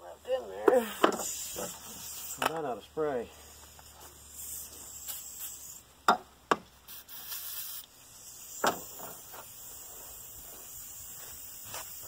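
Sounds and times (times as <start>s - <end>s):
aerosol can hissing: 0.8s - 2.5s, 3.6s - 5.8s, 6.9s - 12.0s.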